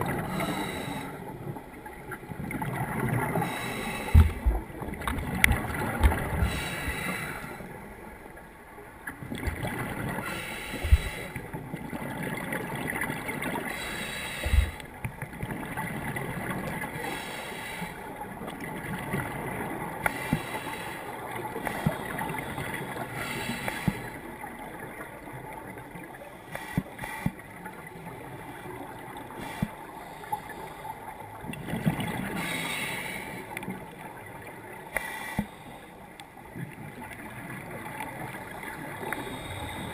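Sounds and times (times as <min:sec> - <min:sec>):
diver's exhaust bubbles gurgling: 0:00.0 - 0:07.2.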